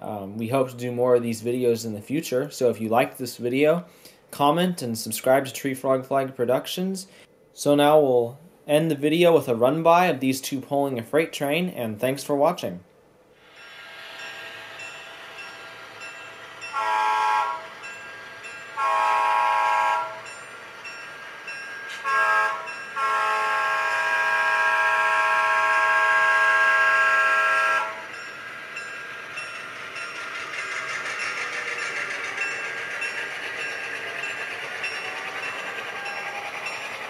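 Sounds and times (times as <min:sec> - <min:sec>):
diesel air horn blasts: 0:16.7 - 0:17.7, 0:18.8 - 0:20.2, 0:21.9 - 0:28.1.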